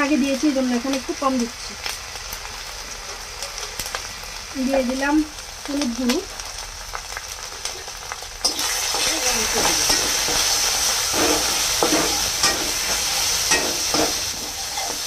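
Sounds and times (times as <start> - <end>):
spice paste sizzling in oil: 0.0 - 15.0
metal spatula scraping pan: 8.5 - 15.0.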